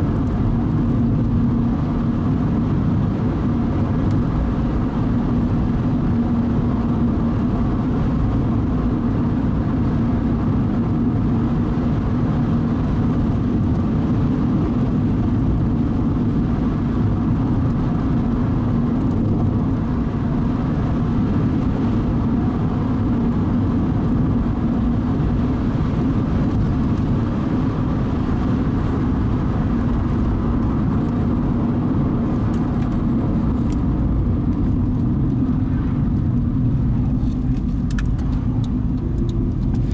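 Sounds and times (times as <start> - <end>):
car road and engine noise: 0.0 - 39.9.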